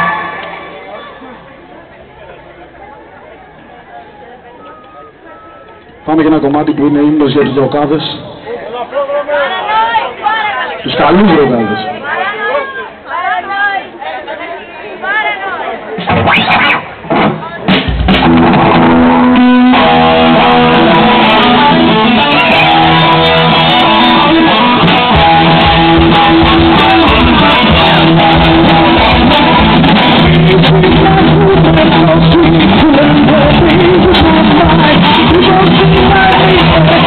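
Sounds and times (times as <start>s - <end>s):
bass guitar: 16.0s - 37.0s
electric guitar sustained notes: 18.1s - 37.0s.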